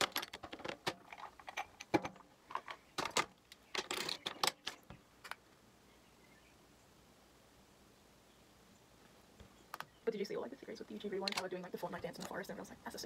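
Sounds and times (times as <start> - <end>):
containers clicking and clattering: 0.0 - 4.8.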